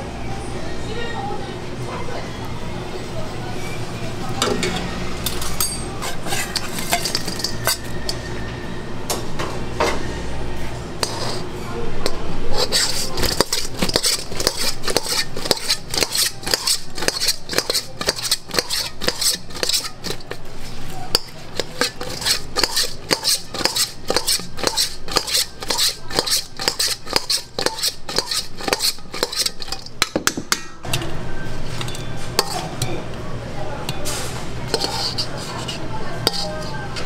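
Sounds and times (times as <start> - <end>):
metal spoon scraping steel bowl: 5.3 - 8.3, 11.0 - 30.0, 31.7 - 32.8, 34.7 - 37.0.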